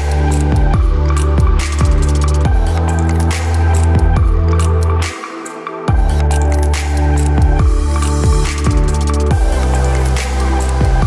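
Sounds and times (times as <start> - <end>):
electronic music: 0.0 - 11.0.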